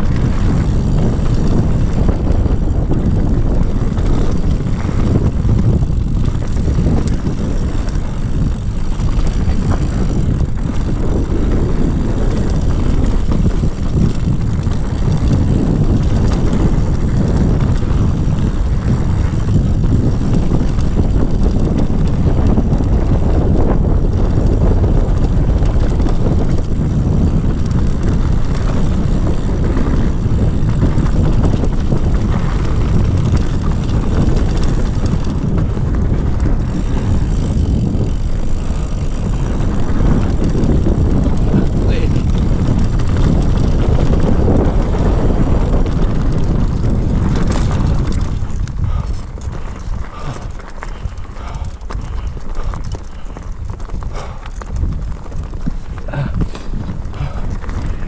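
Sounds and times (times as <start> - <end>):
tyres rattling over gravel: 0.0 - 58.0
wind on microphone: 0.0 - 58.0.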